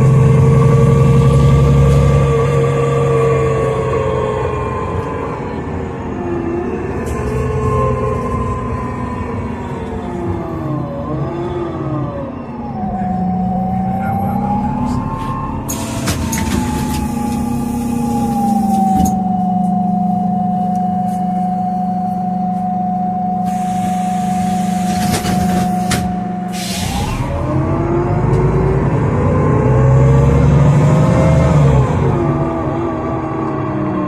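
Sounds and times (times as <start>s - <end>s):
bus engine humming: 0.0s - 34.0s
compressed air hissing: 26.5s - 26.9s.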